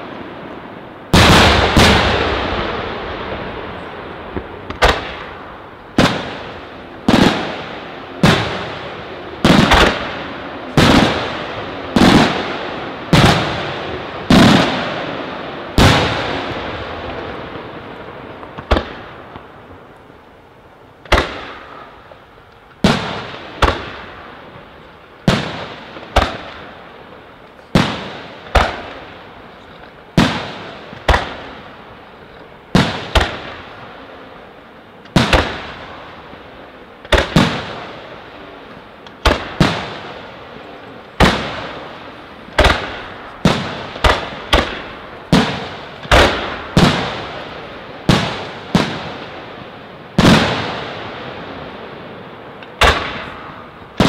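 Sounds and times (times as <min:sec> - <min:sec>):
firework shells bursting: 0:41.1 - 0:47.4, 0:52.6 - 0:54.0.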